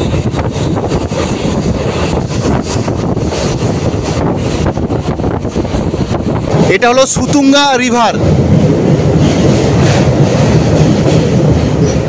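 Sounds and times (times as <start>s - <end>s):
train running rumble: 0.0s - 12.0s
wind buffeting microphone: 0.0s - 12.0s.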